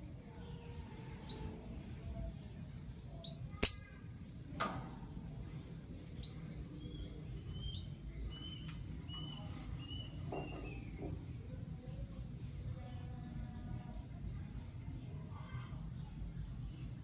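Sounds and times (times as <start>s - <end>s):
lovebirds chirping: 3.1s - 4.0s.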